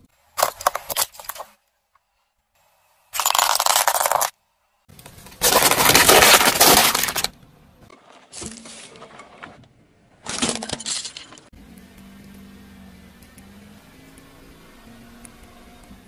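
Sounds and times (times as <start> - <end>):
plastic crunching under car tyre: 4.9 - 9.6.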